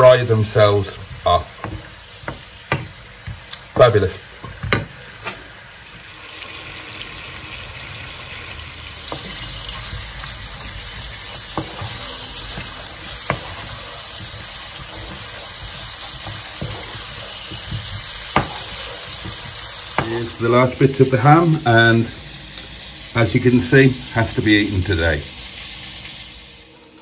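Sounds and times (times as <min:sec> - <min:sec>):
potatoes hissing in frying pan: 0:00.0 - 0:27.0
wooden spatula knocking pan: 0:00.9 - 0:05.0, 0:08.9 - 0:20.4.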